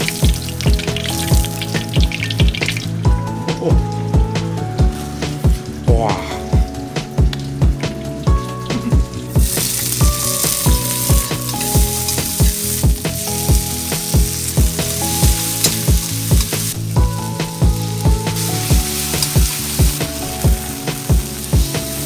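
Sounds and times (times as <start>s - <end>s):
vegetables sizzling in hot oil: 0.0s - 3.0s, 9.2s - 22.0s
music with thumping beat: 0.0s - 22.0s.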